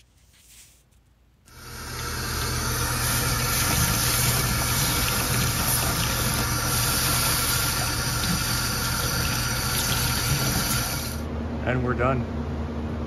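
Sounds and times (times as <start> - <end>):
tap water pouring on hot metal: 1.5 - 11.2
low machine hum: 1.5 - 13.0.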